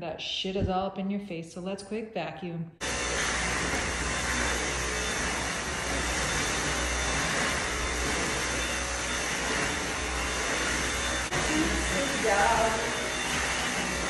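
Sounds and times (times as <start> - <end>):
vacuum cleaner running: 2.8 - 14.0.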